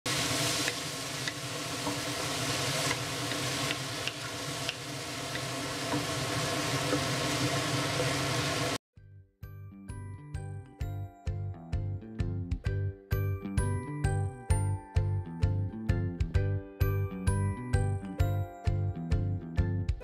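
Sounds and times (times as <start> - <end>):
food sizzling in a wok: 0.1 - 8.8
spatula scraping wok: 0.1 - 8.8.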